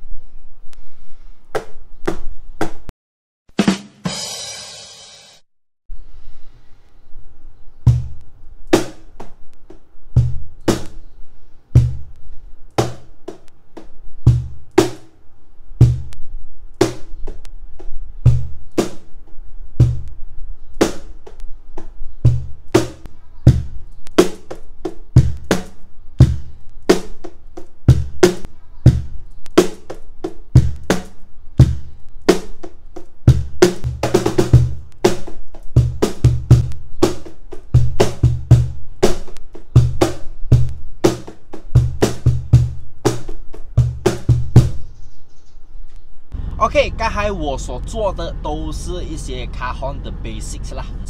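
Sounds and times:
cajon deep bass thumps: 10.2 - 11.0, 11.8 - 12.1, 14.3 - 15.0, 15.8 - 16.2, 19.8 - 20.1, 22.3 - 23.8, 25.2 - 25.6, 27.9 - 29.2, 30.6 - 31.0, 31.6 - 31.9, 33.3 - 44.8.

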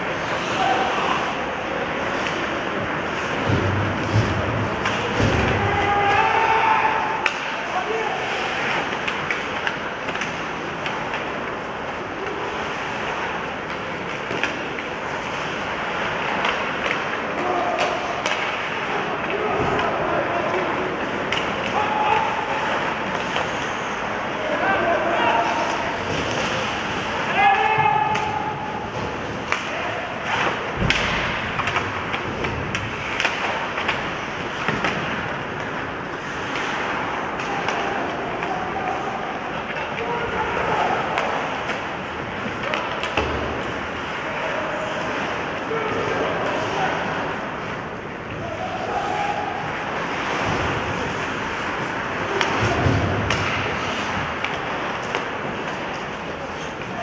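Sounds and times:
skates scraping on ice: 0.0 - 57.0
sticks clacking on puck: 6.9 - 7.7, 8.7 - 12.4, 13.6 - 15.4, 16.2 - 23.7, 27.5 - 40.0, 40.9 - 44.2, 49.6 - 57.0
skate blades scraping ice: 41.0 - 57.0.

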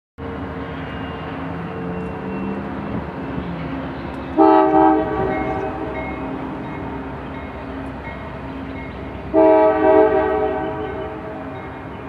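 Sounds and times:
diesel locomotives rumbling: 0.2 - 12.0
locomotive air horn: 4.4 - 6.0, 9.3 - 11.6.

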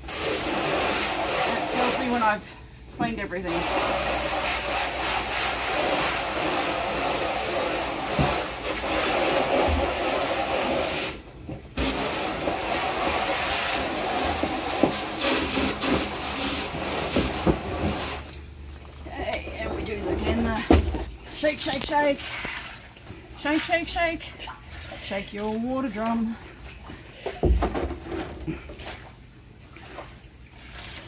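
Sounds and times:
hose spraying into plastic drum: 0.0 - 18.4.

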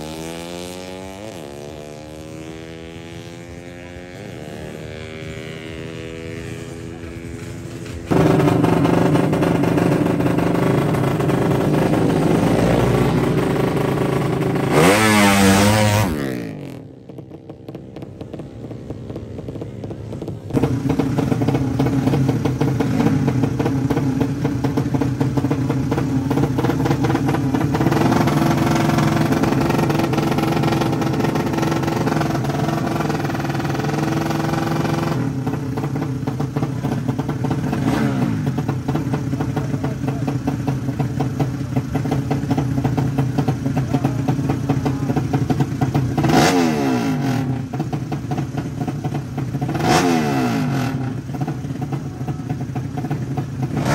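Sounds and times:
motorcycle engines revving: 0.0 - 53.9
motorcycle throttle blips: 4.2 - 46.6.

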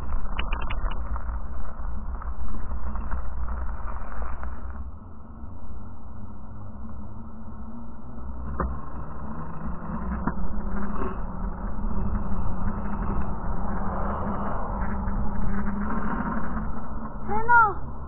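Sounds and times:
bicycle tyre rolling on pavement: 0.0 - 18.0
steady low hum: 0.0 - 18.0
wind rumbling on microphone: 0.0 - 18.0.

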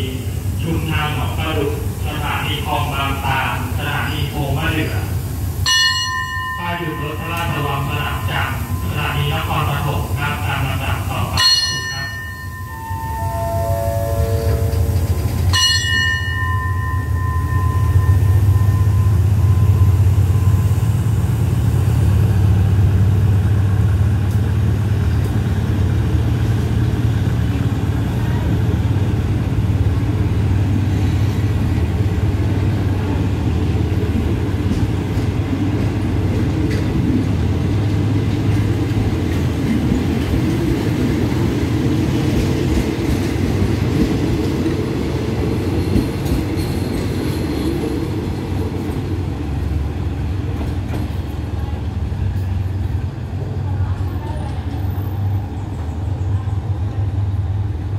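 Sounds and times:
train rumbling along platform: 0.0 - 57.9
bell-like strike: 5.7 - 9.2, 11.4 - 20.0
falling electronic chime: 11.4 - 20.5.

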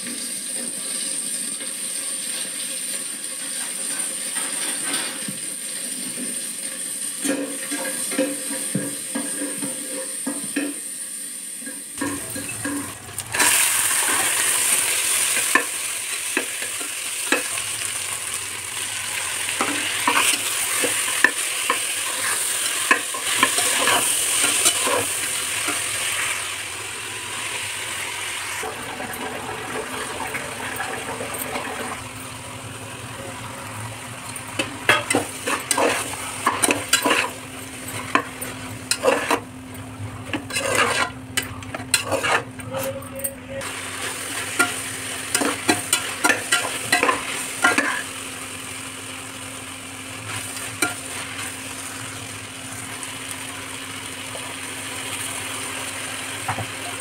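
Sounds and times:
vegetables sizzling in oil: 0.0 - 42.6, 43.6 - 57.0
metal spoon scraping pan: 19.6 - 25.9, 34.6 - 39.5, 40.3 - 43.2, 44.6 - 48.1.

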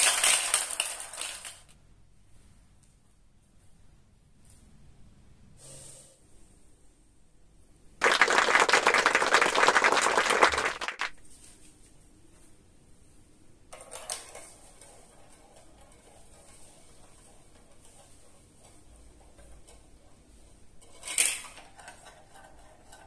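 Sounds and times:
small plastic pieces clattering: 0.0 - 1.8, 20.8 - 23.0.

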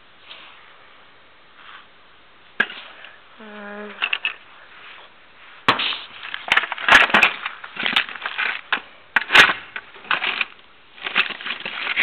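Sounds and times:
rummaging through toolbox parts: 6.2 - 12.0.

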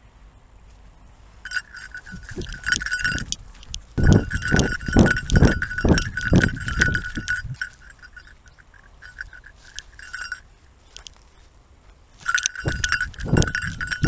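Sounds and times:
metallic jingle: 1.4 - 11.2, 12.2 - 14.0
dog running thuds: 4.0 - 7.7, 12.2 - 14.0.

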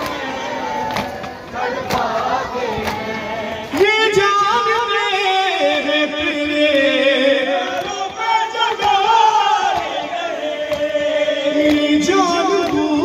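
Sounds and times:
crowd voices: 0.0 - 13.0
man chanting into microphone: 3.5 - 13.0.

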